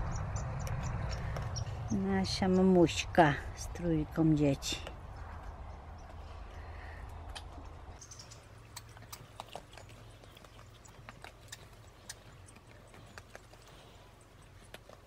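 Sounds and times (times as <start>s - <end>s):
low steady rumble: 0.0s - 15.0s
squirrel cracking seeds: 6.1s - 15.0s.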